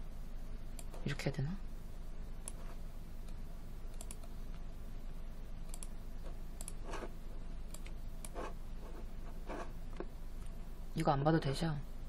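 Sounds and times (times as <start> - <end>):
faint low hum: 0.0 - 12.0
computer clicks: 3.2 - 4.4, 5.6 - 6.0, 6.6 - 7.0, 7.6 - 8.4.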